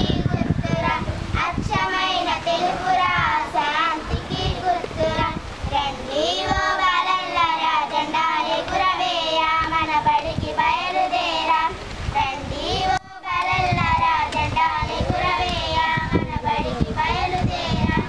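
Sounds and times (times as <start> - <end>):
children singing together: 0.0 - 18.0.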